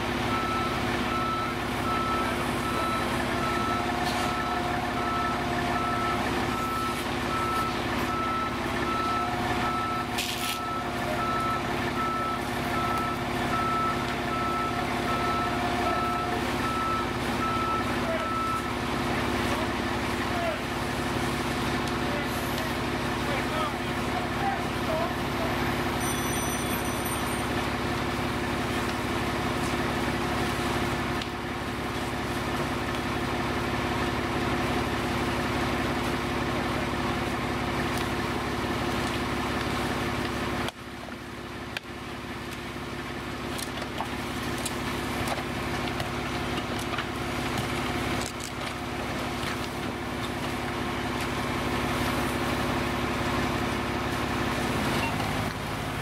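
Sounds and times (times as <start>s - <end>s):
diesel engine running at high idle: 0.0s - 56.0s.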